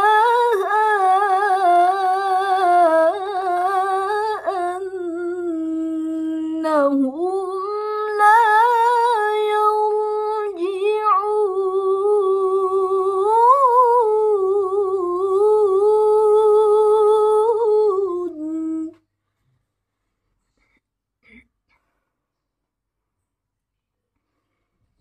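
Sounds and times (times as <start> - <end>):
woman reciting melodically: 0.0 - 19.1.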